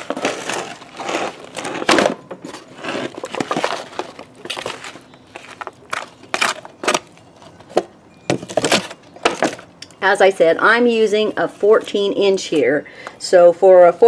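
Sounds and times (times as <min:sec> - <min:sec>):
wooden spoon scraping: 0:00.0 - 0:05.6
foil crinkling: 0:02.5 - 0:07.6.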